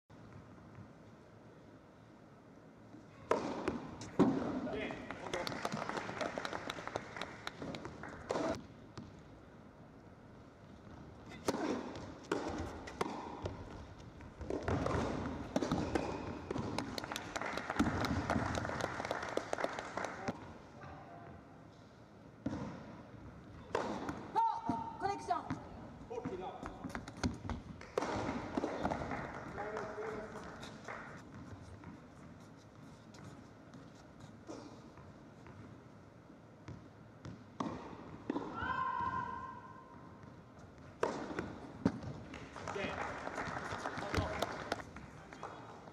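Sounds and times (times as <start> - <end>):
tennis ball struck by racquets: 3.3 - 4.6, 11.4 - 13.8, 14.4 - 17.0, 23.7 - 24.9, 26.9 - 29.1, 37.2 - 38.6, 41.0 - 42.1
crowd applause: 5.1 - 8.2, 16.9 - 20.3, 42.4 - 44.8
tennis ball struck by racket: 11.4 - 13.6, 14.4 - 16.9, 37.6 - 38.5.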